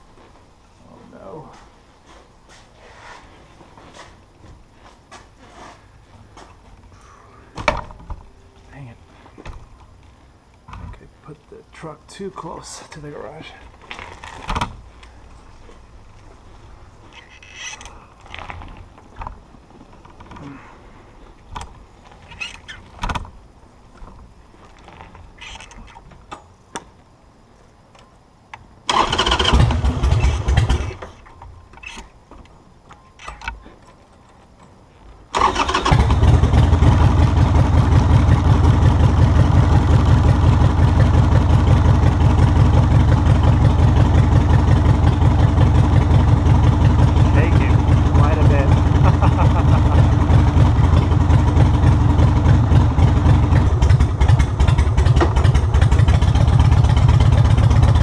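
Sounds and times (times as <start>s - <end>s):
motorcycle engine starting: 28.8s - 32.0s, 35.3s - 58.0s
motorcycle engine idling: 35.4s - 58.0s.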